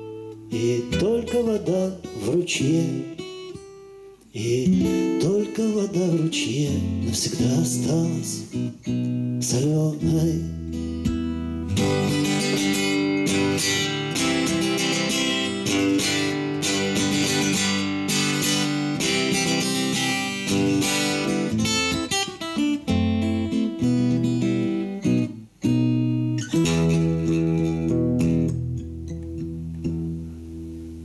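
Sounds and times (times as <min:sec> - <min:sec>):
acoustic guitar strummed and picked: 0:00.0 - 0:31.0.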